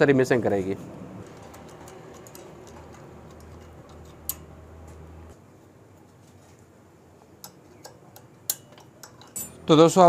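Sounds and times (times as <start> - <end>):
metallic clicks and taps: 1.2 - 5.1, 7.4 - 9.6.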